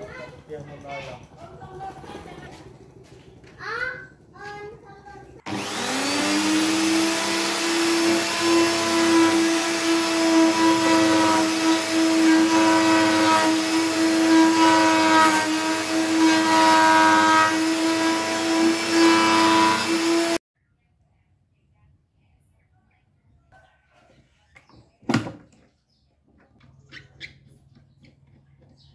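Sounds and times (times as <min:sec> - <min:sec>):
router whining cutting wood: 0:05.5 - 0:20.4.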